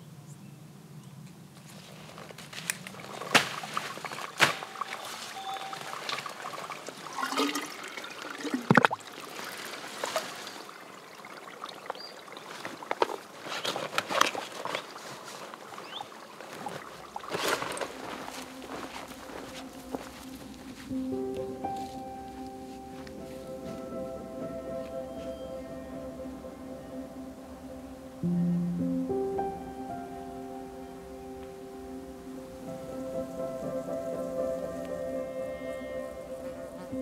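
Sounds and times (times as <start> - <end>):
water pouring into bottle: 4.7 - 13.4.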